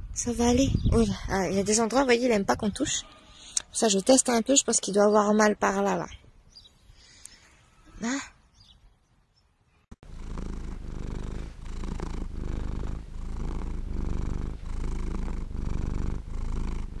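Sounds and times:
cat purring: 0:10.0 - 0:17.0.

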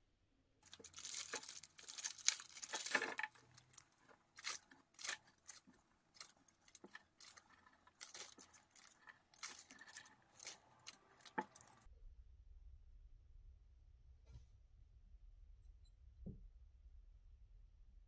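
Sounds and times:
plastic bag crinkling: 0:00.6 - 0:11.9
small metal screws clicking: 0:00.6 - 0:11.9.

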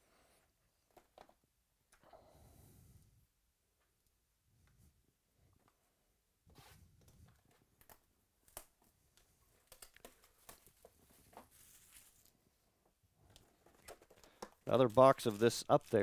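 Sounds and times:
shrink wrap crinkling and tearing: 0:07.5 - 0:12.4, 0:13.2 - 0:16.0.

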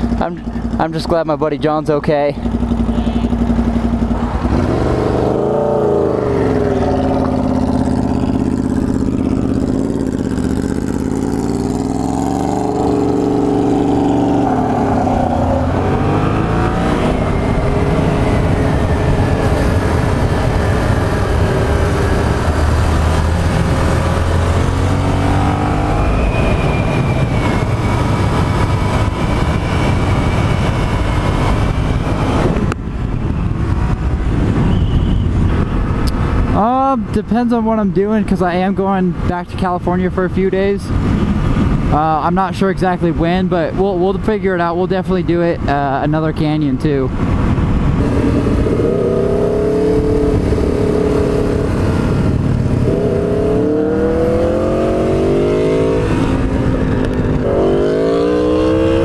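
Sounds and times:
motorcycle engine revving: 0:02.2 - 0:36.5, 0:47.2 - 0:59.0
wind rush: 0:02.9 - 0:36.8, 0:40.6 - 0:42.3, 0:46.8 - 0:59.0.

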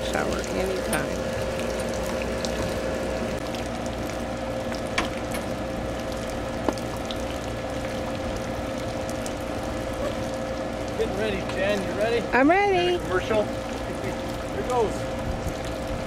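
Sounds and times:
steady machine hum: 0:00.0 - 0:16.0.

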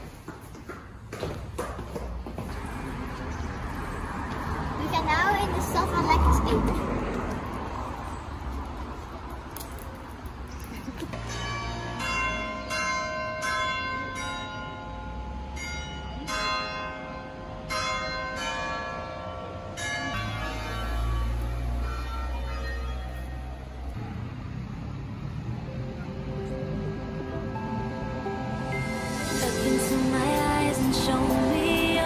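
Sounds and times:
low rumble of street traffic: 0:00.0 - 0:32.0
church bells ringing: 0:11.2 - 0:24.0.

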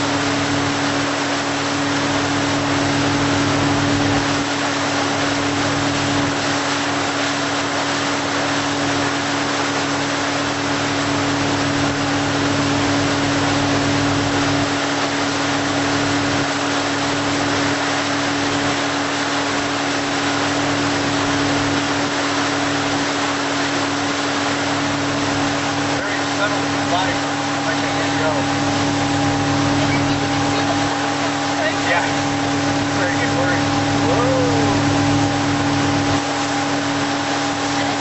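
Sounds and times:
boat engine droning: 0:00.0 - 0:38.0
water rushing: 0:00.0 - 0:38.0.

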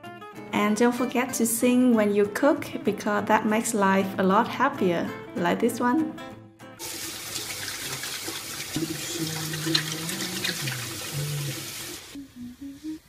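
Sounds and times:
food sizzling in hot oil: 0:06.8 - 0:13.0.

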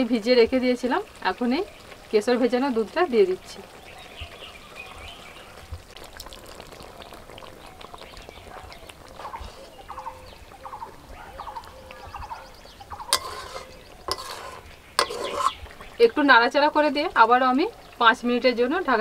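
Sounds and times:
bird calls: 0:03.7 - 0:05.8, 0:07.4 - 0:16.2
liquid pouring into a pan: 0:05.5 - 0:16.0
metal spatula tapping a pan: 0:12.8 - 0:15.6.

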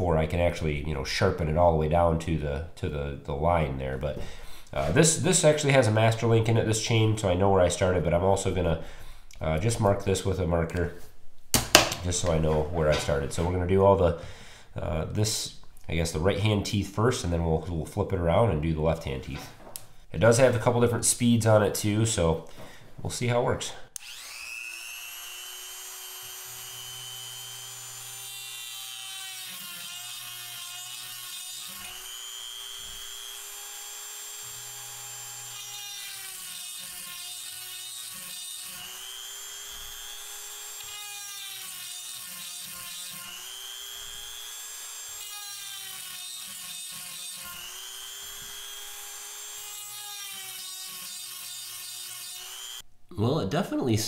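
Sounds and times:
electric sharpener whining: 0:24.0 - 0:52.8.

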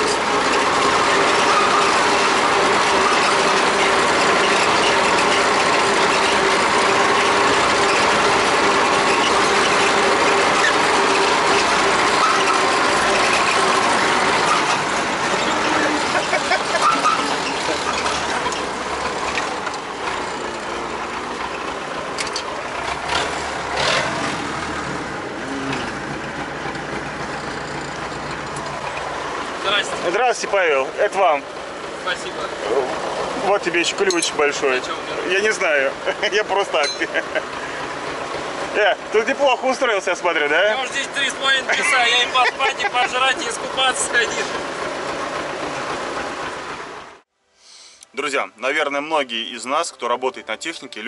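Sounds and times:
clanks: 0:00.0 - 0:24.4, 0:33.3 - 0:35.0, 0:36.6 - 0:37.5
tractor diesel engine rattling: 0:00.0 - 0:47.3.

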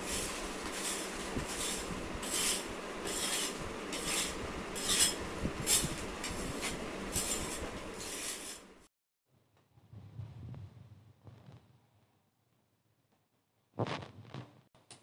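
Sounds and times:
paint scraper scraping wall: 0:00.0 - 0:08.7.

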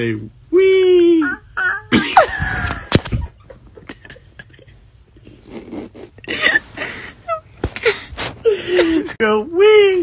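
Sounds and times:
puppy whining: 0:01.2 - 0:02.4
soft rustling: 0:06.3 - 0:09.2.

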